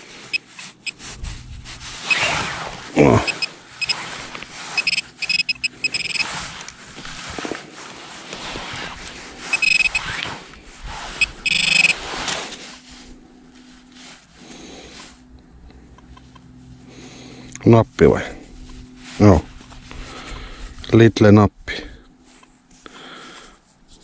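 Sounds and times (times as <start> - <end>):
high-pitched electronic beeps: 3.3 - 4.0, 4.8 - 6.2, 9.5 - 10.0, 11.2 - 11.9.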